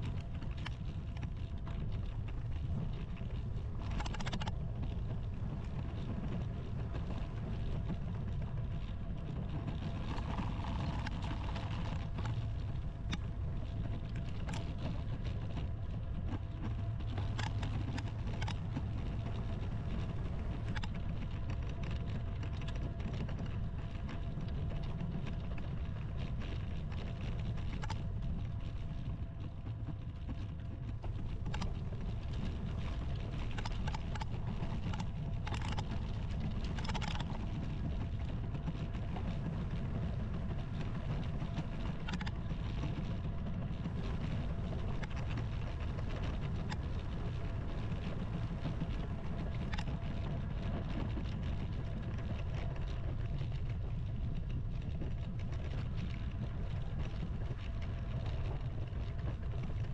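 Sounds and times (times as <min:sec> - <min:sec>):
light clicks and rattles: 0:00.0 - 0:59.9.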